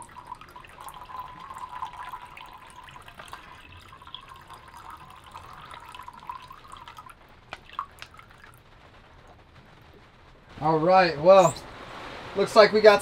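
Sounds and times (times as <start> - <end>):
water trickling into metal cup: 0.0 - 8.6.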